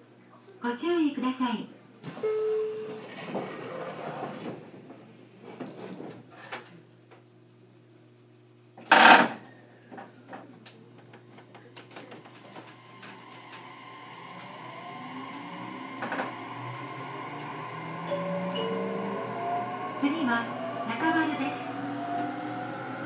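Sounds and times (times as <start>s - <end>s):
train running noise: 2.1s - 6.2s, 11.4s - 23.0s
electric train motor whine: 11.9s - 23.0s.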